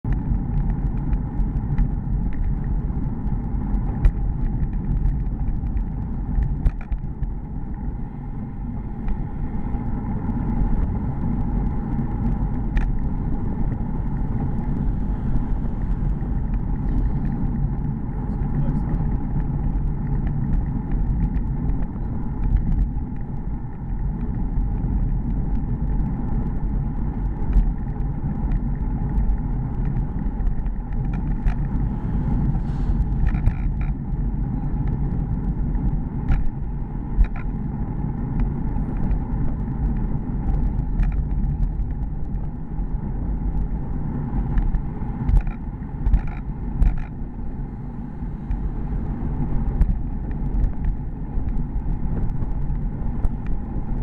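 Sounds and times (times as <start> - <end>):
road rumble: 0.0 - 54.0
wind noise: 0.0 - 54.0
sharp clicks and knocks: 44.6 - 47.2.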